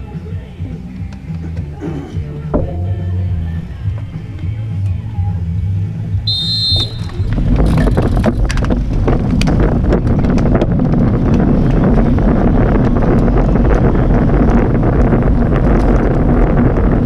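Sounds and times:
wind noise on microphone: 0.0s - 17.0s
bike drivetrains ticking: 6.2s - 17.0s
cleats clicking into pedals: 6.3s - 17.0s.

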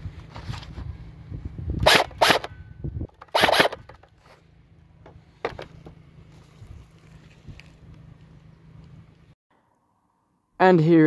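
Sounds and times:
electric airsoft gun bursts: 1.8s - 2.5s, 3.3s - 3.8s.

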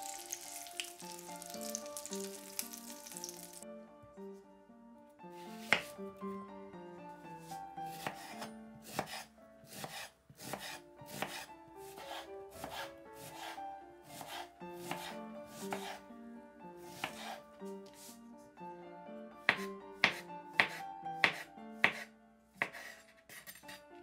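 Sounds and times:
soft background music: 0.0s - 24.0s
knife chopping on cutting board: 5.4s - 6.0s, 7.9s - 13.6s, 14.2s - 16.0s, 16.9s - 17.4s, 19.4s - 23.8s.

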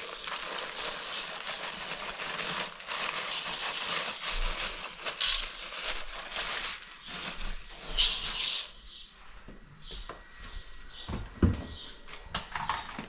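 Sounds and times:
plastic bag crinkling: 0.0s - 8.8s
rice pouring into metal basin: 0.0s - 8.8s.

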